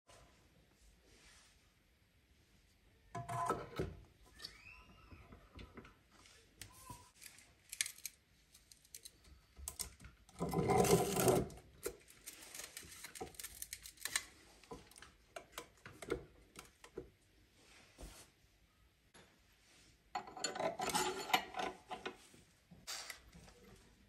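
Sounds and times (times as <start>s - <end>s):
metal parts clicking and knocking: 20.2s - 22.2s
metal scraping rattle: 20.3s - 22.1s.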